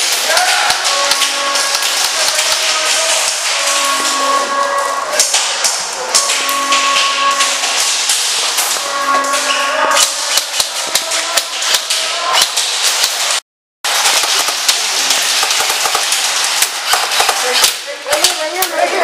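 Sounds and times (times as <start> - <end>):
pellets striking: 0.0 - 19.0
airsoft guns firing: 10.0 - 18.4.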